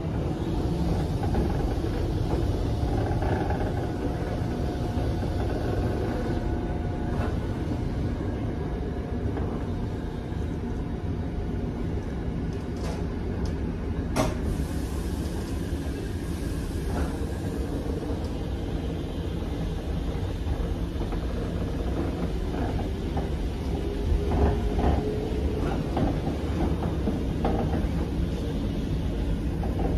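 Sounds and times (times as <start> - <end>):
train carriage rumbling on track: 0.0 - 29.9.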